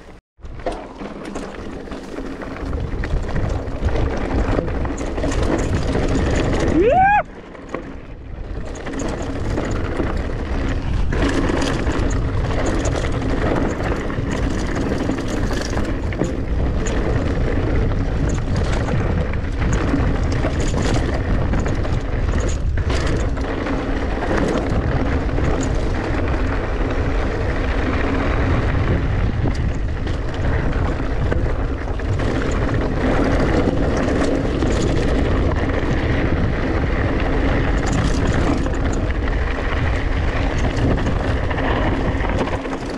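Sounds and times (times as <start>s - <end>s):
bike knocks and rattles: 0.0s - 42.9s
bike tyres and frame rumbling: 0.0s - 42.9s
wind rushing over microphone: 2.4s - 7.3s, 8.0s - 42.9s.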